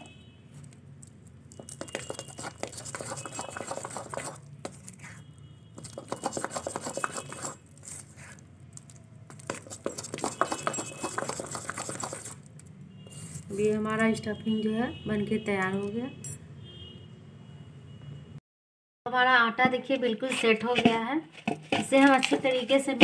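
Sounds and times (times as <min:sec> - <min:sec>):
metal spoon scraping steel bowl: 0:01.6 - 0:05.2, 0:05.8 - 0:08.4, 0:09.3 - 0:12.4, 0:13.1 - 0:13.6.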